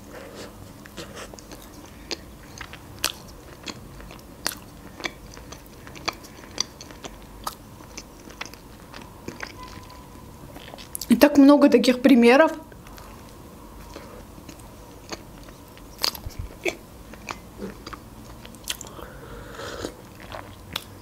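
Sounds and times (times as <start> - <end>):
person chewing: 0.0 - 11.1, 12.8 - 21.0
mouth clicks and smacks: 16.0 - 19.0.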